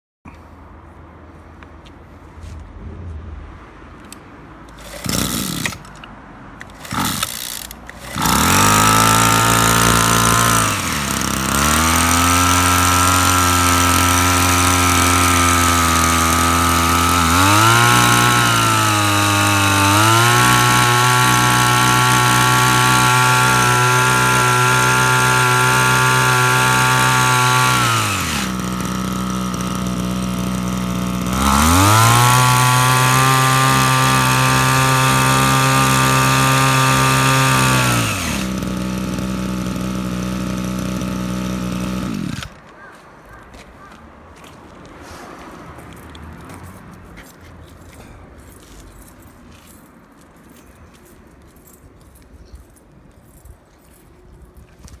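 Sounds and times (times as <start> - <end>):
recoil starter pulls: 4.7 - 42.6
two-stroke sprayer engine revving: 4.8 - 5.9, 6.8 - 42.6.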